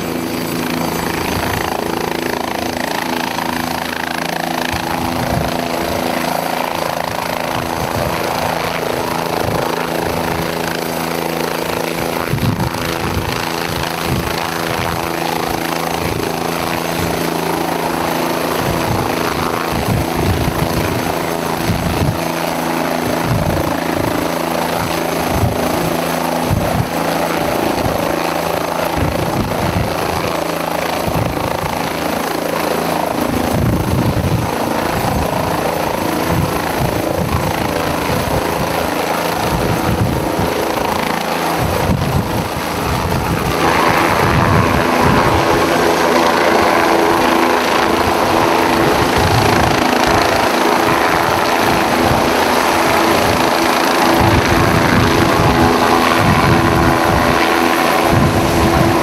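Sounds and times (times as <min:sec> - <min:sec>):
helicopter rotor and turbine: 0:00.0 - 0:59.0.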